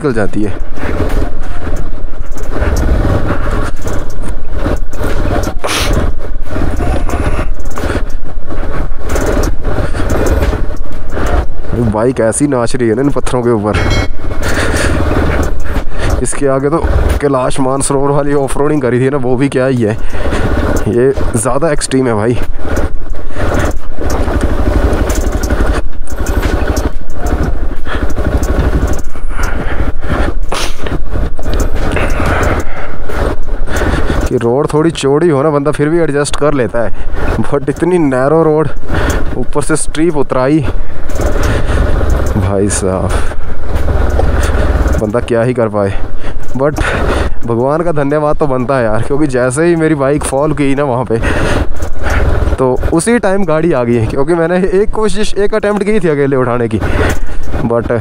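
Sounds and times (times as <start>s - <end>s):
motorcycle engine at low speed: 0.0s - 58.0s
stones clattering under tyres: 14.1s - 58.0s.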